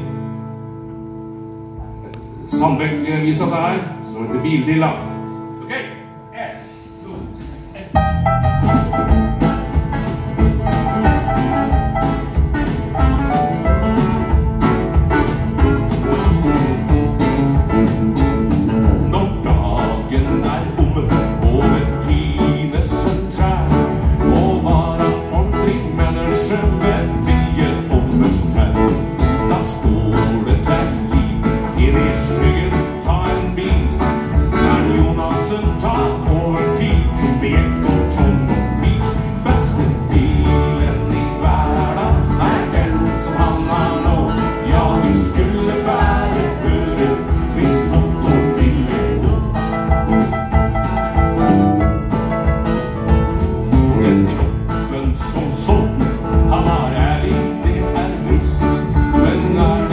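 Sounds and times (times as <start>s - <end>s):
live country band playing: 0.0s - 59.9s
drum kit beat: 7.1s - 59.9s
man singing: 16.1s - 50.5s, 53.8s - 59.9s.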